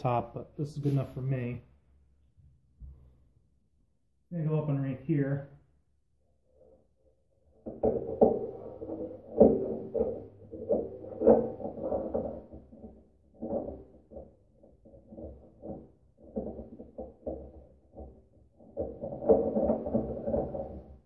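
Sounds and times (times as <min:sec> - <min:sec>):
knocks thumps and scraping: 0:07.4 - 0:21.0.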